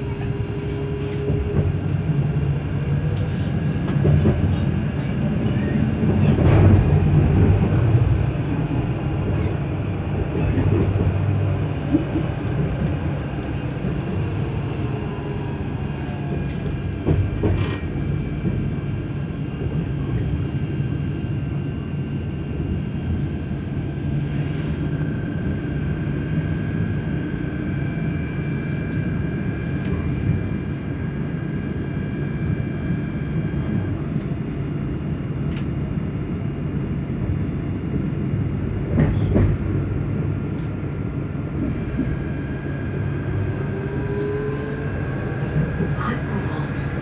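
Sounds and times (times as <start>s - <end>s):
tram wheels rumbling on rail: 0.0s - 47.0s.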